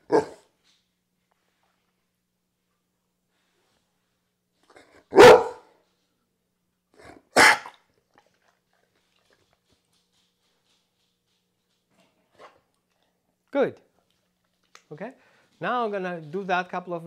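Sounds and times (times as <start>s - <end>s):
dog barking: 0.0s - 0.5s, 4.9s - 5.7s, 7.1s - 7.8s.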